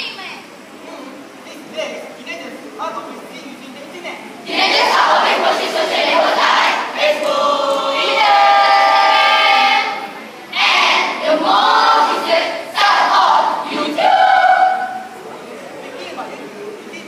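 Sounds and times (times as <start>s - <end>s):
choir chanting and singing in unison: 4.4s - 15.2s.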